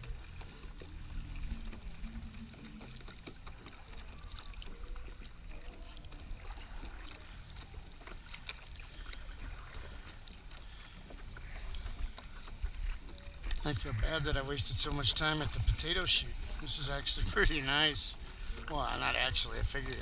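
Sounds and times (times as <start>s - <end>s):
water dripping off paddle: 0.0s - 20.0s
steady low rumble: 8.8s - 20.0s.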